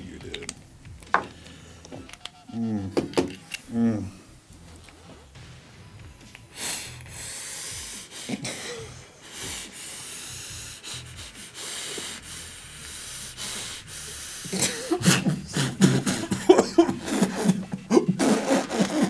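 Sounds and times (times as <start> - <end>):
vape hissing: 6.1 - 8.5, 9.2 - 14.6
person coughing: 8.3 - 9.0, 14.5 - 19.0.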